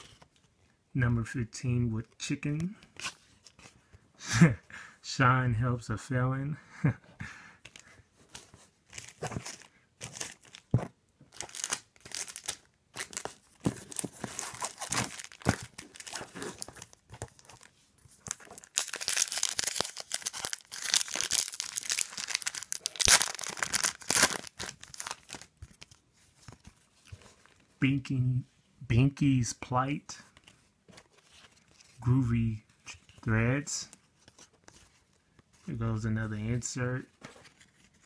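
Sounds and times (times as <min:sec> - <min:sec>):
foil pack crinkling and tearing: 0:11.4 - 0:13.2, 0:13.9 - 0:17.5, 0:18.4 - 0:25.9.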